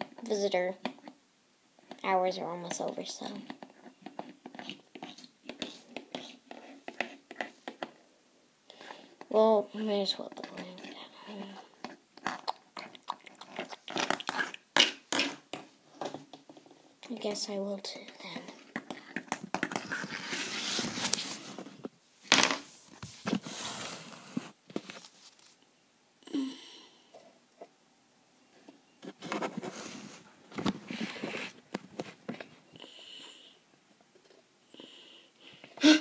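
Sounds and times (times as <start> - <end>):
handling rustling and scraping: 1.8 - 8.0, 8.8 - 25.7, 28.5 - 32.8.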